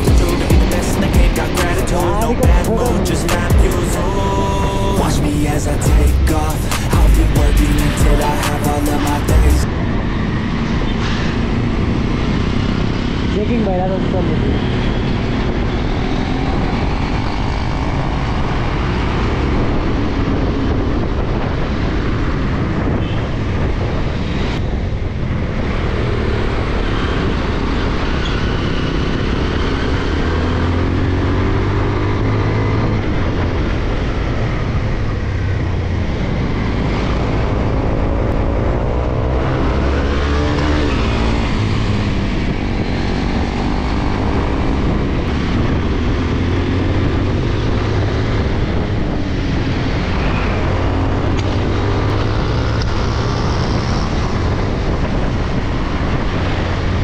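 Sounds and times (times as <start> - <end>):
motorcycle engine revving: 0.0 - 57.0
wind noise on microphone: 0.0 - 57.0.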